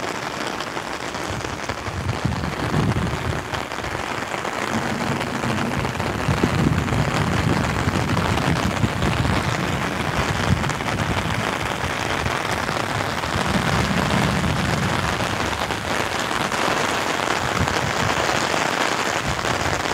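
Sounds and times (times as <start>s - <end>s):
rain pattering on an umbrella: 0.0s - 19.9s
low rumbles: 1.3s - 16.6s.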